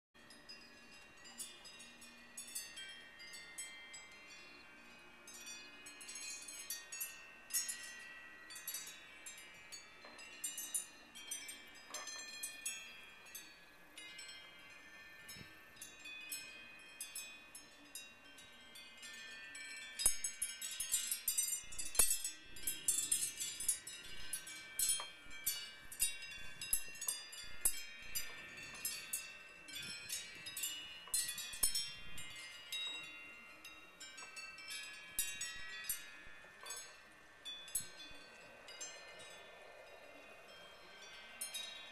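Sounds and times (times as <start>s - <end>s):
wind chimes ringing: 0.2s - 41.9s.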